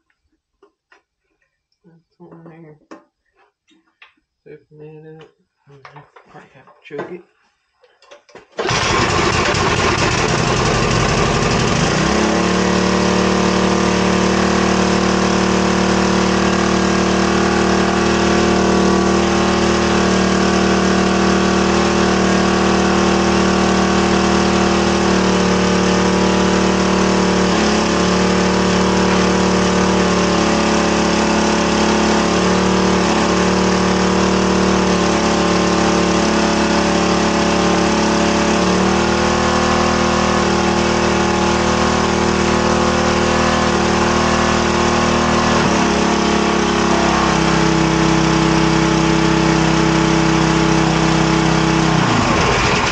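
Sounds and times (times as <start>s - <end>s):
small gas engine running: 8.6s - 52.9s.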